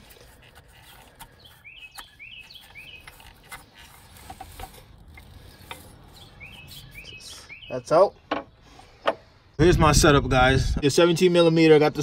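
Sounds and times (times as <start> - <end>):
bird chirping: 0.6 - 4.6, 5.3 - 9.6.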